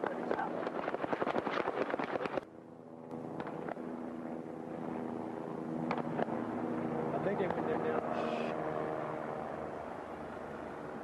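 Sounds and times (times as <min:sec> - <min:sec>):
rapid sharp cracks: 0:00.0 - 0:02.4
vehicle engine humming: 0:02.2 - 0:11.0.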